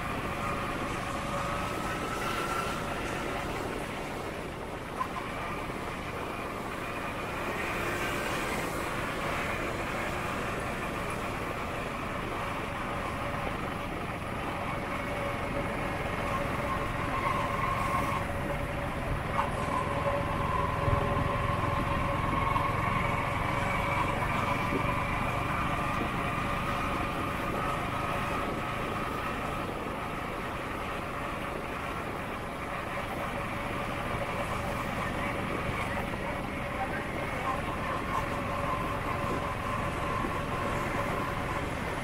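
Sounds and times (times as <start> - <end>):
drivetrain whine: 0.0 - 42.0
road and wind noise: 0.0 - 42.0.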